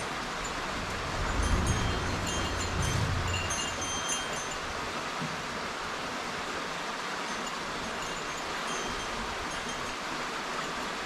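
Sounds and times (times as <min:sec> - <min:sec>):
stream flowing over riffle: 0:00.0 - 0:11.0
faint high ringing tones: 0:00.4 - 0:04.8, 0:07.3 - 0:10.9.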